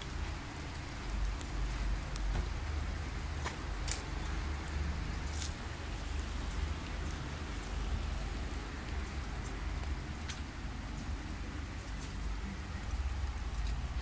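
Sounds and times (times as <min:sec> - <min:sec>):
rain hiss: 0:00.0 - 0:14.0.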